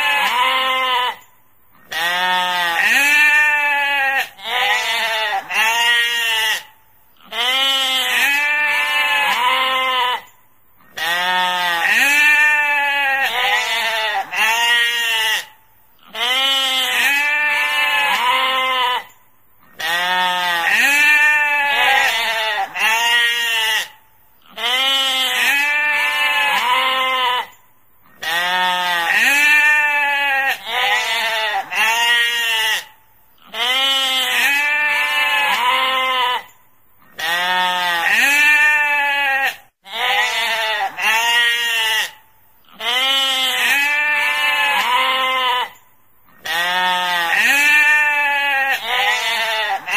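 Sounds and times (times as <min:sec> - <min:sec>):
sheep bleating: 0:00.0 - 0:49.9.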